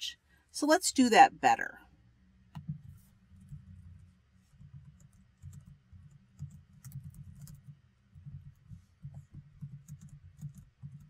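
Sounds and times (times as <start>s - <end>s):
typing on computer keyboard: 3.4s - 11.0s.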